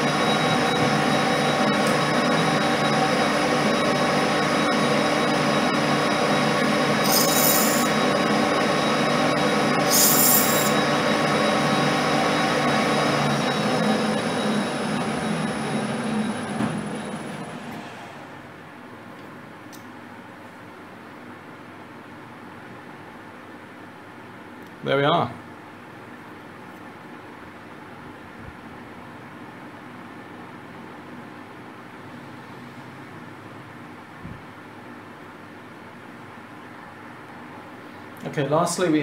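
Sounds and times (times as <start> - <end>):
lathe running: 0.0 - 17.9
spindle winding down: 0.0 - 18.1
high-pitched scrapes: 7.0 - 8.1, 9.8 - 10.9.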